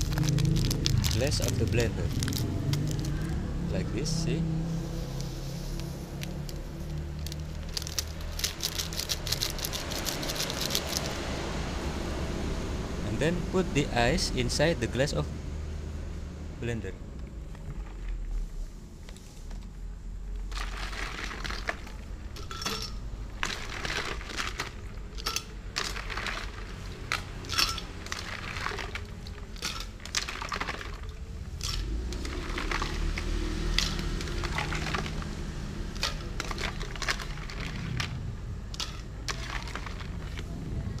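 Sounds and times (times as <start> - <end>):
ice cubes clattering in a blender jar: 0.0 - 3.1, 6.3 - 11.1, 20.5 - 35.3, 35.9 - 40.5.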